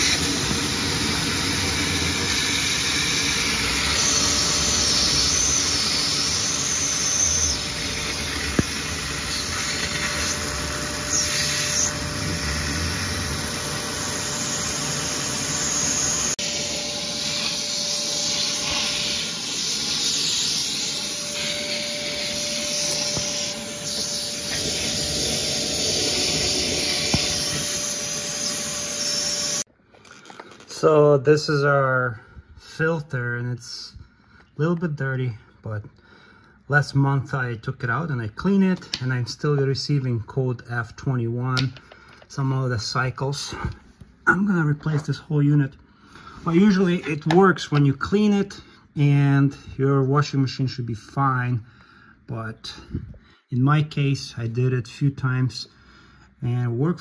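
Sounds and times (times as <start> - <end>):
steady whine: 0.0 - 29.7
shop vac sucking water: 0.0 - 30.4.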